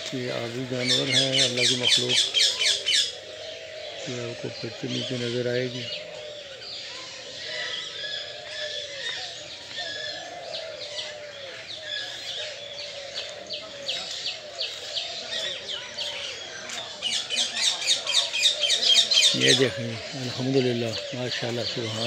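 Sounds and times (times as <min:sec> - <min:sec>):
lower arching bird calls: 0:00.0 - 0:22.0.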